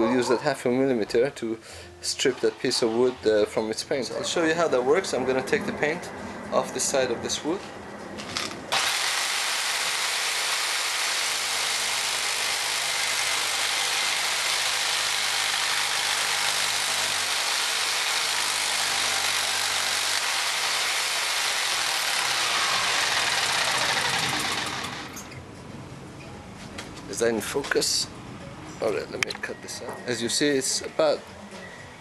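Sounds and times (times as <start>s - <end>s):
jigsaw running: 8.4s - 25.3s
wood fed along saw blade: 8.7s - 25.4s.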